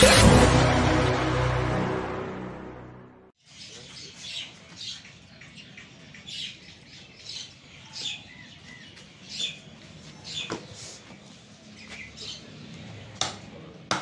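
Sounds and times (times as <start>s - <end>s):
small birds chirping: 3.4s - 13.6s.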